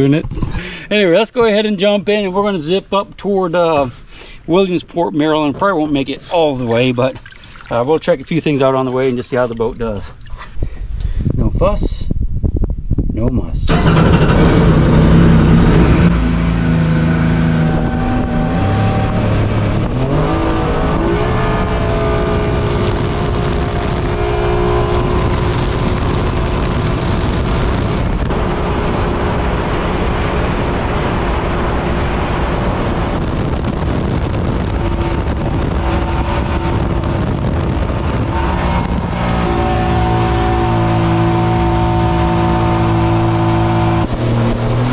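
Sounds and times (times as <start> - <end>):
water rushing: 5.7 - 10.5, 14.9 - 33.3, 34.1 - 44.9
jet boat engine: 13.7 - 44.9.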